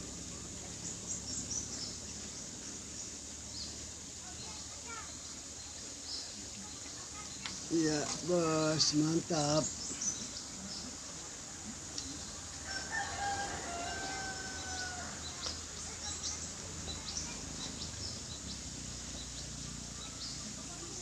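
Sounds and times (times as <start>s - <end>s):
rooster crowing: 12.6s - 15.4s.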